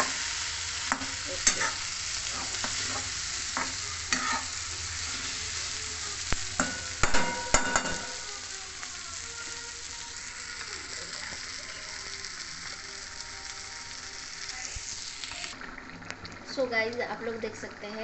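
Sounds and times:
spatula scraping a pan: 0.0 - 5.6
curry sizzling in a pan: 0.0 - 18.0
spatula knocking on pan: 6.6 - 8.2.

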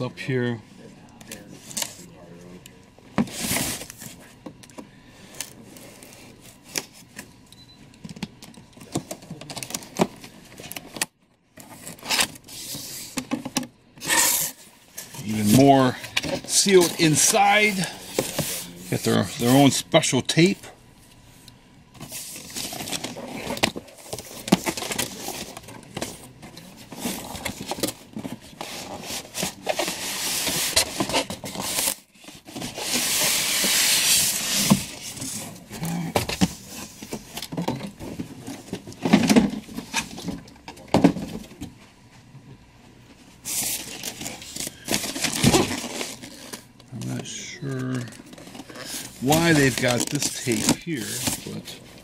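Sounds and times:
cardboard packaging rustling: 8.8 - 19.8, 22.0 - 40.5, 43.4 - 52.0
styrofoam scraping: 14.0 - 19.6, 28.4 - 35.6, 48.6 - 51.9.

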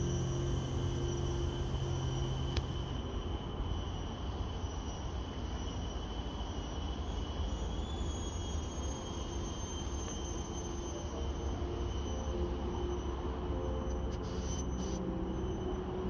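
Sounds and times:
constant low rumble: 0.0 - 5.6.

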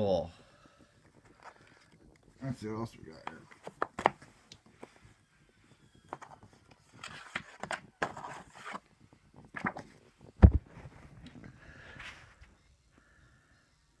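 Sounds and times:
cardboard rustling and scraping: 6.1 - 11.2.

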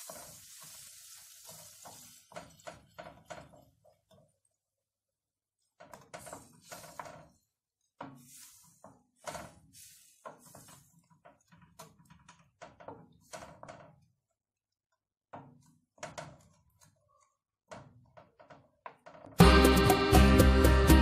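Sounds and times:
wooden spoon scraping metal pot: 0.0 - 4.4, 5.6 - 13.7.

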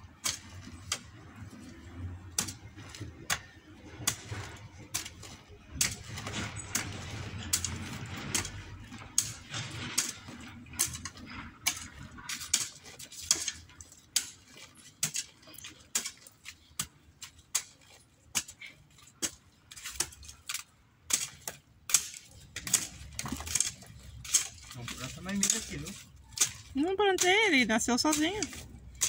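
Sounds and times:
hoe striking stony soil: 0.0 - 29.0.

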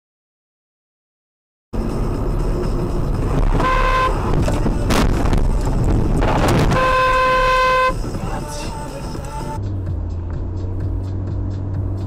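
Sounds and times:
road noise inside moving car: 1.8 - 12.0
car horn honking: 3.5 - 5.0, 6.2 - 8.9.

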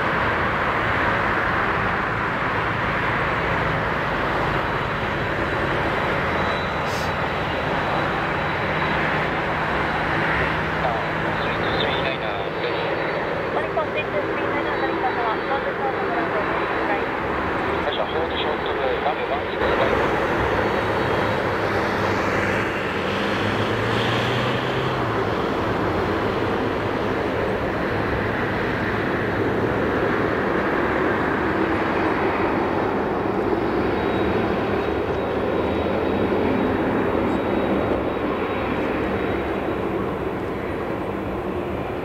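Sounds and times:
jet engine rumble: 0.0 - 42.0.

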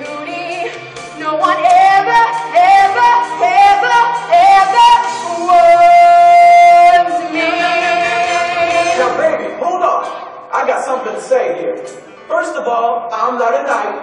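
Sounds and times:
girl singing: 0.0 - 9.1
backing music: 0.0 - 13.8.

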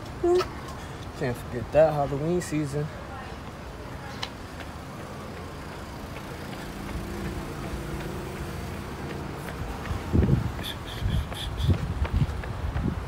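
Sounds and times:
street traffic rumble: 0.0 - 13.0
vehicle engine close by: 4.9 - 12.0.

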